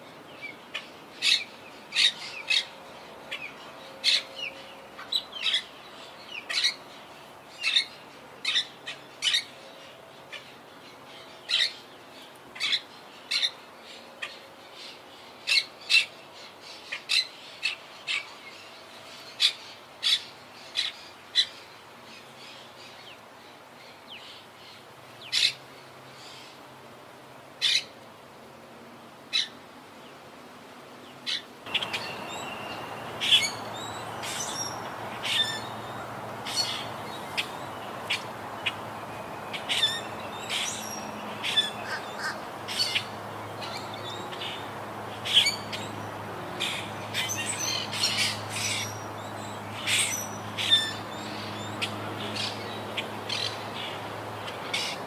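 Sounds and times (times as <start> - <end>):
steady background hiss: 0.0 - 55.0
parakeets squawking: 31.3 - 35.8, 39.5 - 43.1, 45.2 - 45.9.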